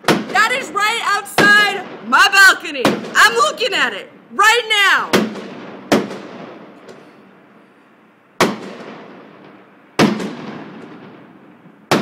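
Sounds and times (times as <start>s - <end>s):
loud firework bangs: 0.0s - 0.6s, 2.8s - 3.3s, 5.1s - 7.0s, 8.4s - 12.0s.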